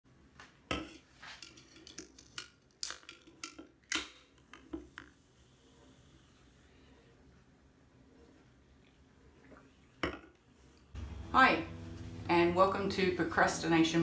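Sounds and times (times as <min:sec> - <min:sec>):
can cracking open: 0:01.9 - 0:04.3.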